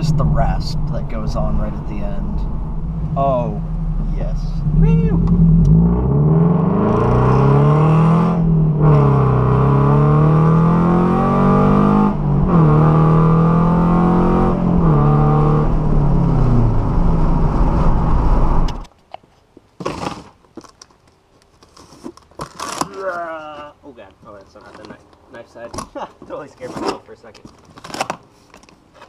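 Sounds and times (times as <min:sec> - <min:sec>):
car engine accelerating: 0:00.0 - 0:18.9.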